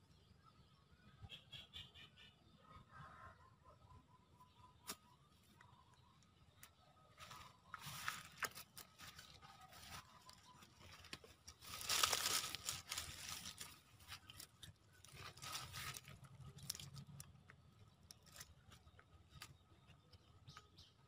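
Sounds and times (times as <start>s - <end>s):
dry leaves rustling: 7.2s - 17.2s.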